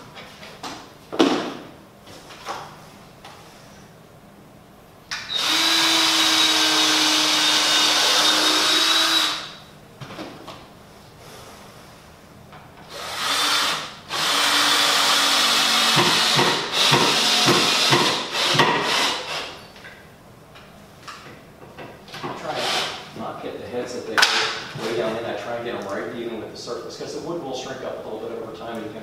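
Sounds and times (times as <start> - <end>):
cordless drill driving screws: 5.2 - 9.6, 12.9 - 19.6, 22.5 - 23.0.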